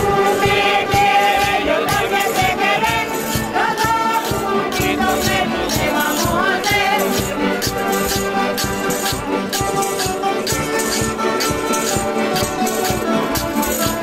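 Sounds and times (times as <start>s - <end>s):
voices singing together: 0.0s - 8.3s
piano accordion: 2.6s - 14.0s.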